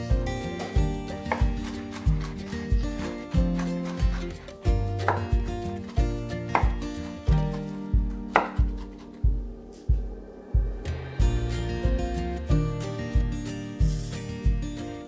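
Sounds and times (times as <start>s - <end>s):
background music with steady beat: 0.0s - 15.0s
knife chopping on wooden board: 0.6s - 4.4s, 5.0s - 7.7s, 8.3s - 9.2s.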